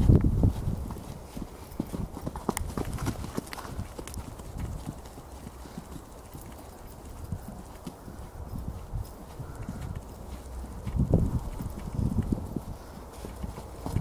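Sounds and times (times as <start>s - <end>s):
hoofbeats on sand: 0.0s - 14.0s.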